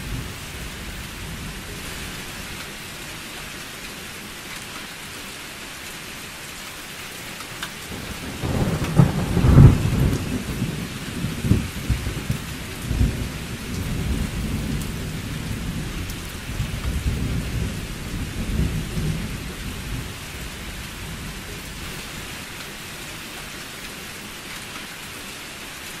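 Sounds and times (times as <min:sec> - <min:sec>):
steady rain: 0:00.0 - 0:26.0
thunder rumbling and cracking: 0:07.9 - 0:22.2.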